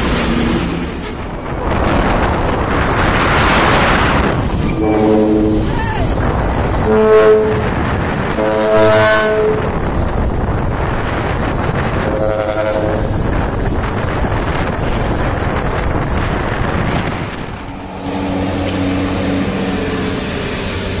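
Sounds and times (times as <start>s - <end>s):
road and wind noise: 0.0s - 21.0s
lower-pitched horn blast: 4.6s - 5.9s, 6.8s - 9.9s, 12.0s - 13.2s, 17.7s - 21.0s
truck air horn blasts: 4.7s - 5.8s, 6.8s - 9.8s, 12.0s - 13.1s, 18.0s - 20.2s.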